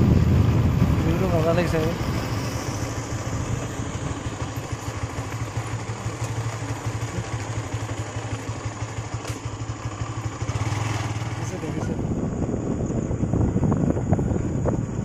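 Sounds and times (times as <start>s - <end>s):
wind noise: 0.0s - 5.3s, 10.3s - 15.0s
road noise: 0.0s - 15.0s
vehicle engine running: 0.0s - 15.0s.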